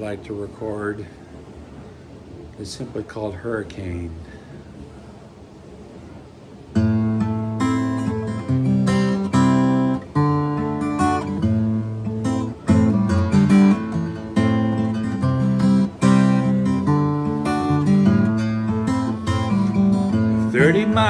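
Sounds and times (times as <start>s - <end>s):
acoustic guitar chords: 6.7s - 21.0s.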